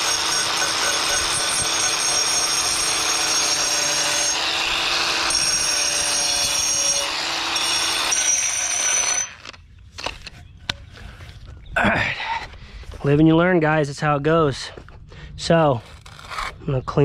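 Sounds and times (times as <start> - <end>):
angle grinder grinding stone: 0.0 - 9.6.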